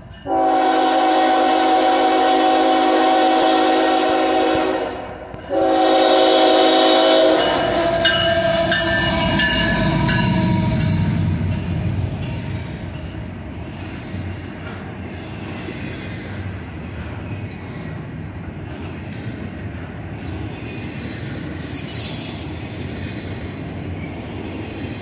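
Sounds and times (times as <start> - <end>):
train engine and wheels rumbling: 0.0 - 25.0
locomotive air horn blasts: 0.3 - 9.0.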